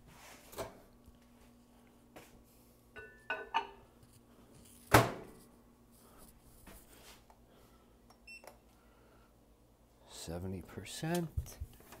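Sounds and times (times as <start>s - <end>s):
ceramic mug clinking: 3.0s - 3.8s.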